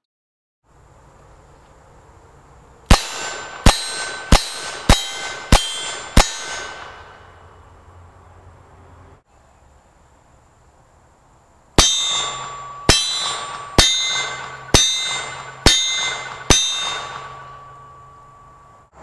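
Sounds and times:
bullet clanging on steel plate: 11.8 - 18.2.

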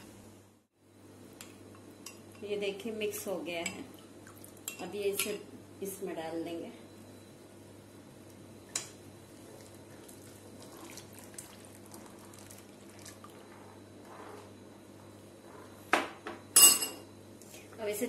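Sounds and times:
steady low hum: 0.0 - 18.0
faint liquid sounds: 9.2 - 15.8.

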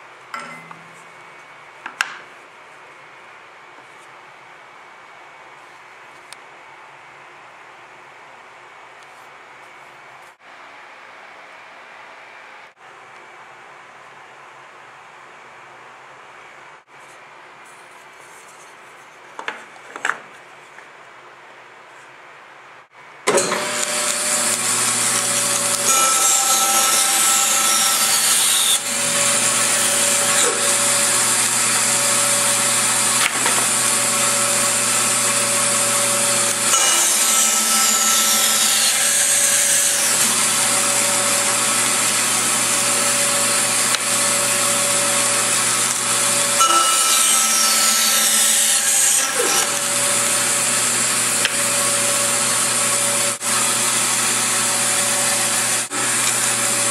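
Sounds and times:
power saw cutting wood: 23.3 - 56.9.

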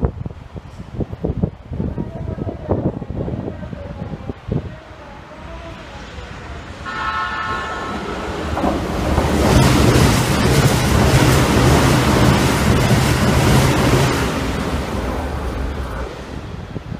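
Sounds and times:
train passing with loud rumble: 0.0 - 16.9
train horn: 6.8 - 9.0.

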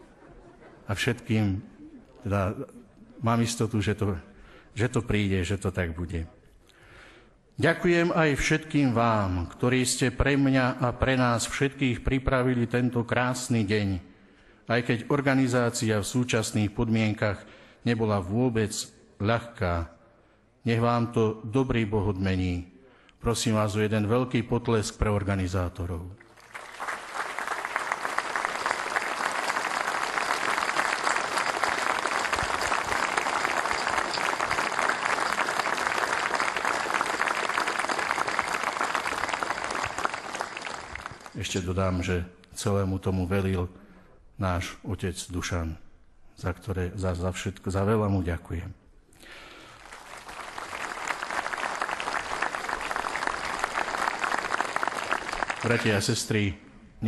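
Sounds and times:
large crowd applauding: 26.3 - 41.7, 49.3 - 56.2.

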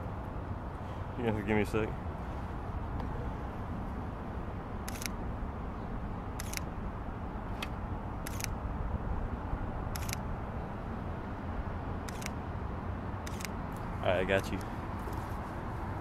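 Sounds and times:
camera shutter clicking: 4.9 - 5.2, 6.4 - 6.7, 8.2 - 8.6, 10.0 - 10.2, 12.1 - 12.4, 13.2 - 13.6.

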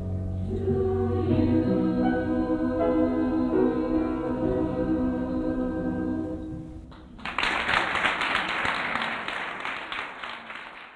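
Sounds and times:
choir singing: 0.3 - 6.8
audience applause: 6.9 - 10.9.

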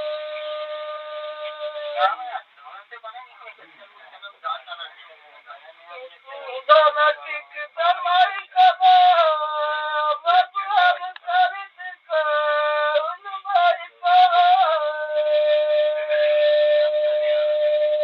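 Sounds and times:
man singing folk song: 6.2 - 18.0.

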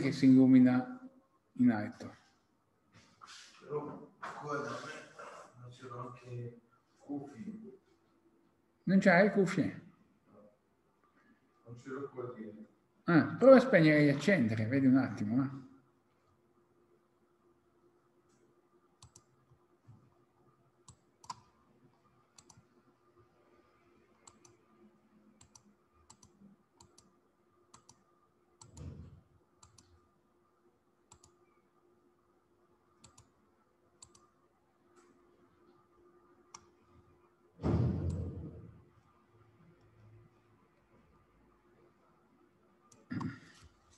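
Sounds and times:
faint steady hum: 0.0 - 43.9
computer mouse clicking: 19.0 - 19.3, 20.8 - 21.5, 22.4 - 22.7, 24.2 - 24.6, 25.4 - 29.0, 29.6 - 30.0, 31.1 - 31.4, 33.0 - 33.4, 34.0 - 34.3, 36.5 - 36.7.

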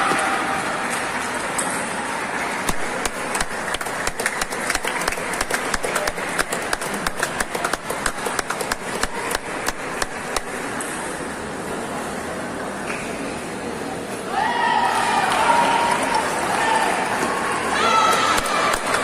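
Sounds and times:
sports hall background noise: 0.0 - 19.0
table tennis balls clicking: 2.6 - 10.8.

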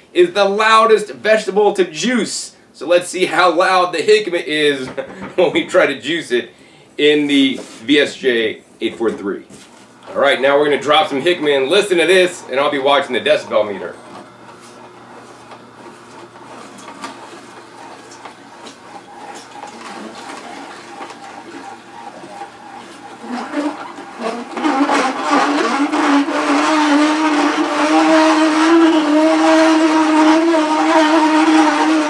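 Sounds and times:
juicer motor hum and grinding: 9.9 - 32.0
juicer squeaking screech: 10.0 - 32.0.

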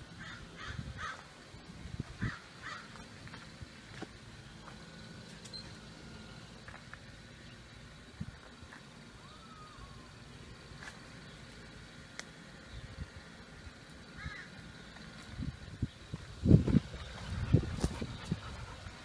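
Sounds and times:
birds giving harsh calls: 0.2 - 1.3, 2.2 - 3.1, 14.0 - 15.1, 15.8 - 19.0.

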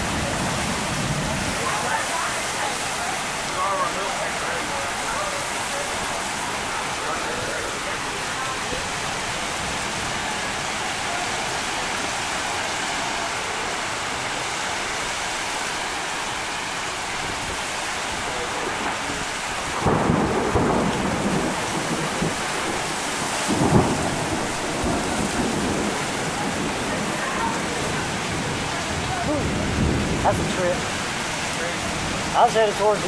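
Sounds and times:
heavy rain pouring: 0.0 - 33.0
thunder rumbles: 17.2 - 33.0.

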